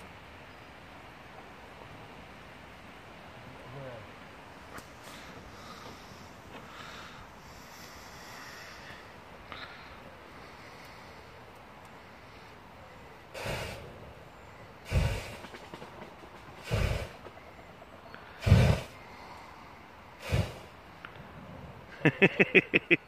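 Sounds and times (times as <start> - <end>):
fire breathing bursts: 4.8 - 21.0.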